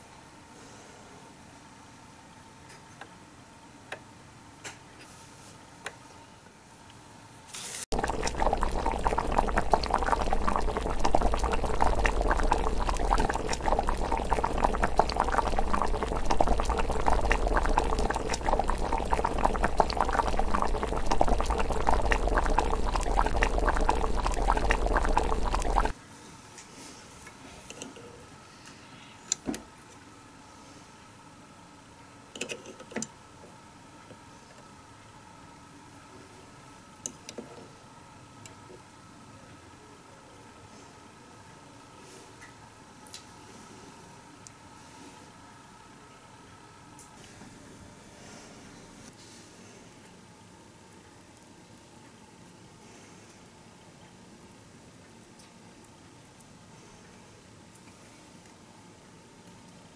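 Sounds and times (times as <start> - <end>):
water boiling in small pot: 7.9 - 26.0.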